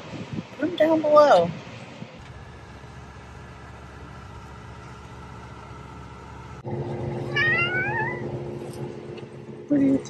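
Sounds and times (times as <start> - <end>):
boat motor humming: 2.2 - 10.0
cat meowing: 7.3 - 8.2.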